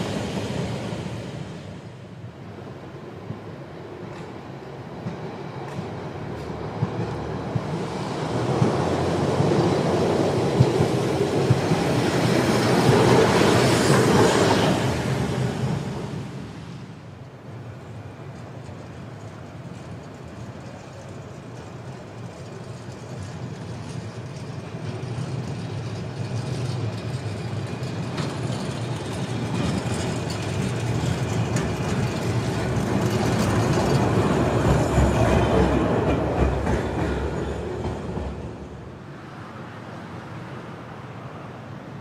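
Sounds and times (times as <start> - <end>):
tram passing on rails: 0.0 - 42.0
wheels clicking over track: 18.3 - 38.4.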